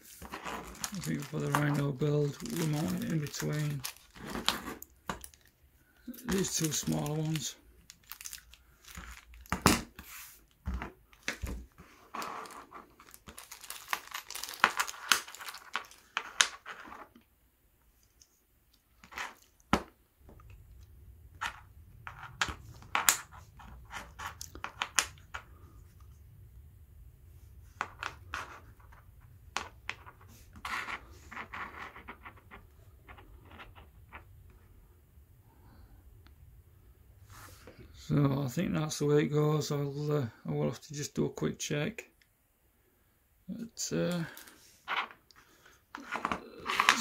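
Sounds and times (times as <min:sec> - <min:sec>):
plastic bags crinkling and tearing: 0:00.3 - 0:05.5, 0:06.2 - 0:09.9, 0:12.2 - 0:16.5, 0:46.5 - 0:47.0.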